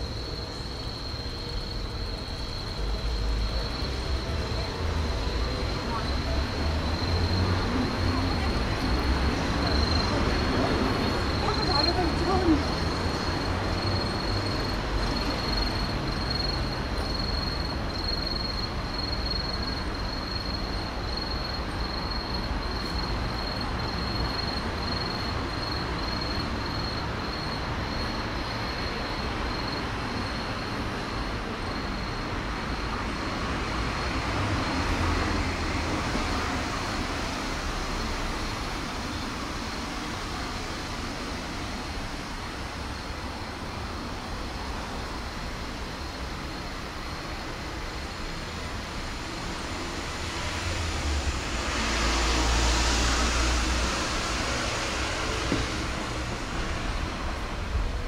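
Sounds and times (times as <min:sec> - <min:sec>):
high-pitched whine: 0:00.0 - 0:58.0
roadside traffic hum: 0:00.0 - 0:58.0
car passing close: 0:47.8 - 0:58.0.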